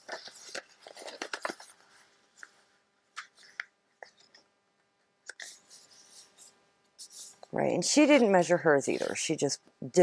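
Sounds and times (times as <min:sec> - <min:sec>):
paper rustling and creasing: 0:00.0 - 0:04.4.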